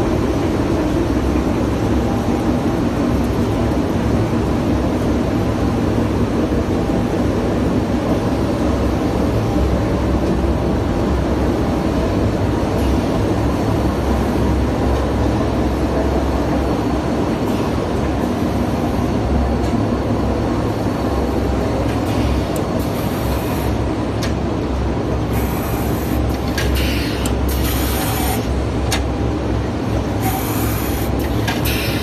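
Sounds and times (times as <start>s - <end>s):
production line machine din: 0.0s - 32.0s.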